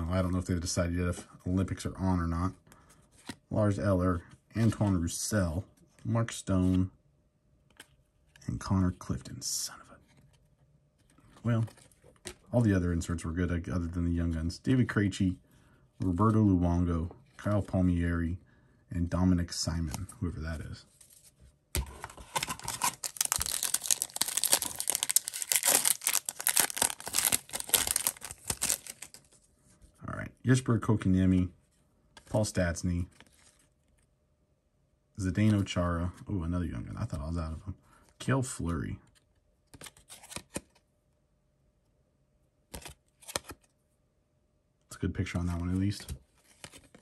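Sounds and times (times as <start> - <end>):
wrapper tearing and crinkling: 22.2 - 29.3.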